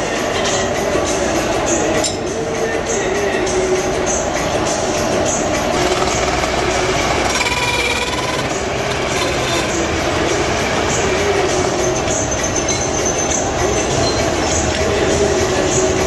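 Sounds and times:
metal lathe running: 0:03.3 - 0:16.0.

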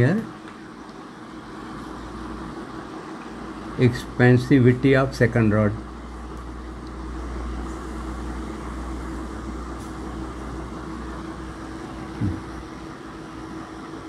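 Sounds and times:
steady hiss: 0:00.0 - 0:14.0
low hum: 0:05.8 - 0:14.0.

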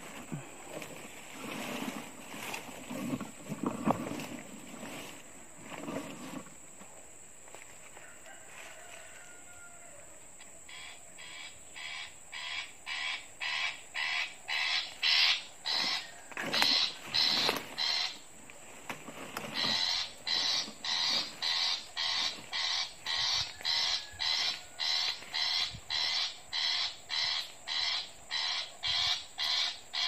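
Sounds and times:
harsh rasping bird calls: 0:10.6 - 0:30.0.

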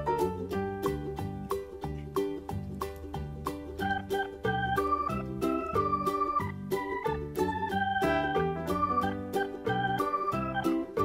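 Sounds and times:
keyboard music short chords: 0:03.7 - 0:11.0.

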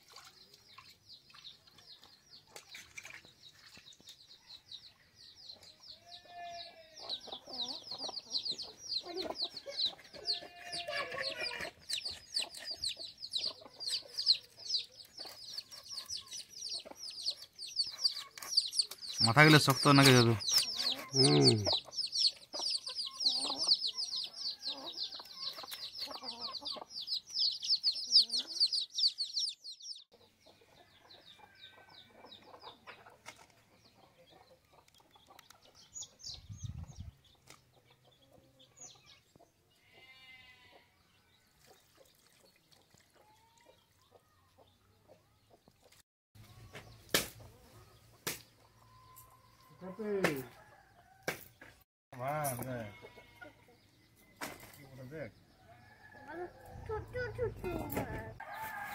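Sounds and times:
chickens clucking: 0:07.0 - 0:40.0, 0:41.6 - 0:50.9.

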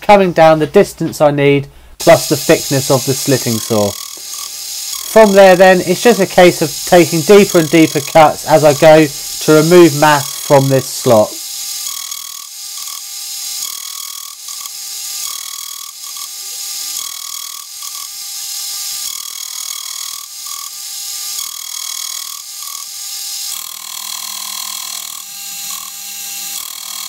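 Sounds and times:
milling saw cutting metal: 0:02.0 - 0:27.0.

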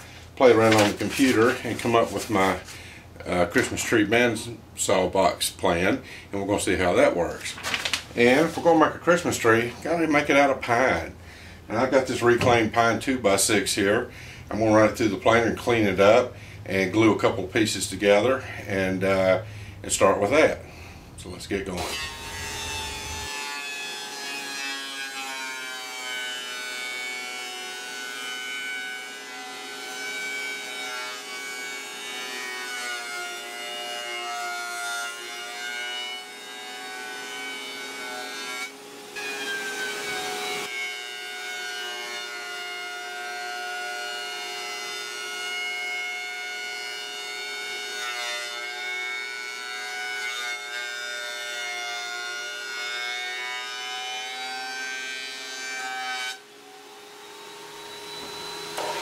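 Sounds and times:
thickness planer whining: 0:00.1 - 0:02.8, 0:21.7 - 0:46.5, 0:51.5 - 0:59.0.

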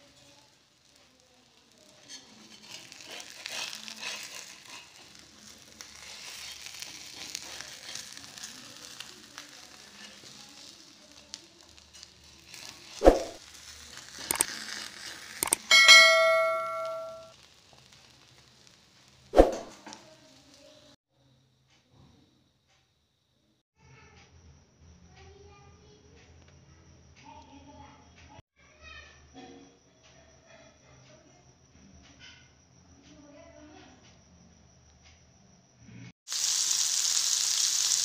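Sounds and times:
omelette sizzling in a pan: 0:00.0 - 0:21.0, 0:36.3 - 0:38.0
spatula scrapes and clicks: 0:01.6 - 0:15.6
click and bell ding: 0:15.4 - 0:17.3.

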